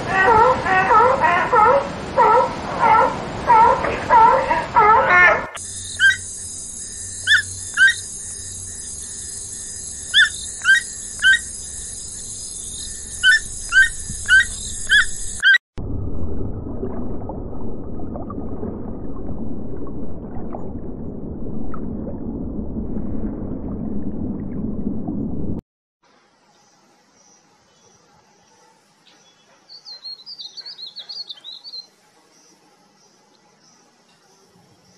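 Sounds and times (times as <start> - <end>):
rush of water: 0.0 - 6.2
high insect hiss: 5.6 - 15.5, 26.1 - 30.5, 31.4 - 34.9
sharp bird calls: 5.8 - 6.3, 7.2 - 8.4, 10.0 - 11.6, 12.6 - 15.6, 29.7 - 31.9.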